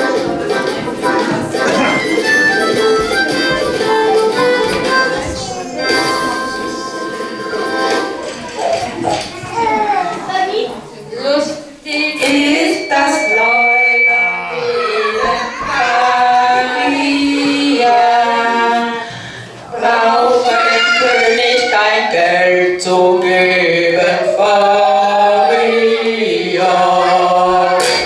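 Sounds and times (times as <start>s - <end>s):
voices singing in chorus: 12.2s - 28.0s.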